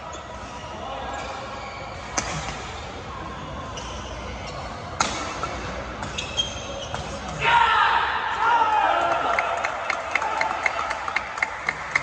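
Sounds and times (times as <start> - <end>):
shoes squeaking on court floor: 0.0 - 7.4
sports hall background hum: 0.0 - 12.0
rackets striking shuttlecock: 5.0 - 6.2.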